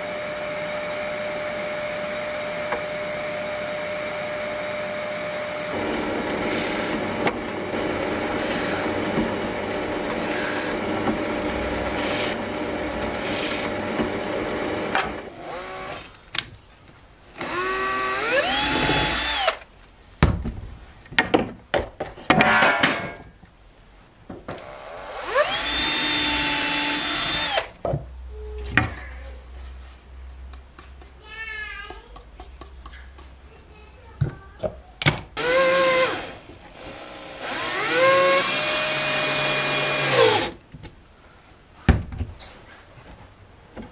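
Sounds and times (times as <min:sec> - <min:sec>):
vacuum running: 0:00.0 - 0:16.0
cordless drill whining: 0:00.0 - 0:16.1, 0:17.4 - 0:19.7, 0:24.6 - 0:27.8, 0:35.4 - 0:40.6
drill press running: 0:00.0 - 0:16.1, 0:17.4 - 0:19.6, 0:24.6 - 0:27.7, 0:35.4 - 0:40.6.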